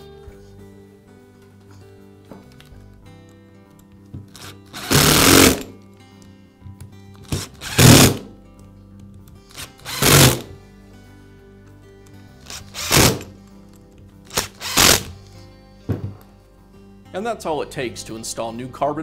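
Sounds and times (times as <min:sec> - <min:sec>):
background music: 0:00.0 - 0:19.0
power screwdriver driving screws: 0:04.3 - 0:05.8, 0:07.2 - 0:08.3, 0:09.5 - 0:10.5, 0:12.4 - 0:13.4, 0:14.3 - 0:15.2.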